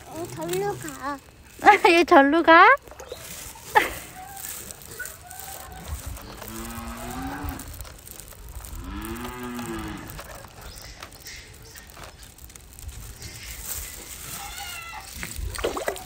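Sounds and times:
cow-like mooing: 8.8 - 10.2.

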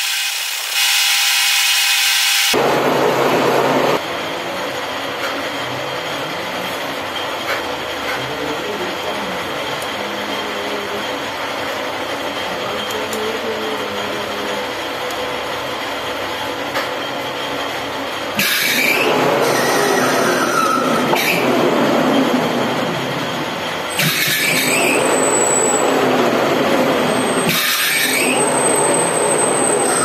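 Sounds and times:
lathe running: 0.0 - 30.0
high squealing tones: 18.4 - 30.0.

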